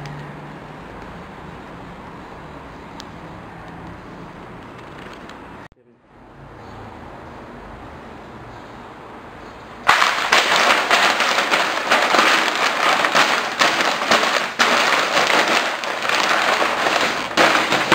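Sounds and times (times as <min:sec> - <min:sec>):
paper being crumpled: 0:09.9 - 0:17.9.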